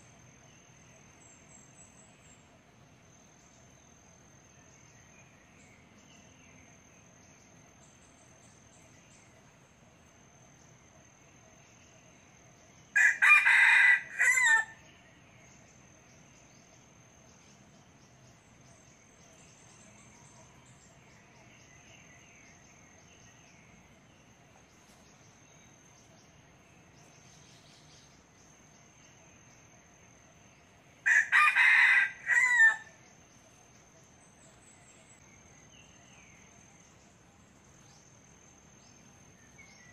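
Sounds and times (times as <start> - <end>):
rooster crowing: 13.0 - 14.8, 31.0 - 33.0.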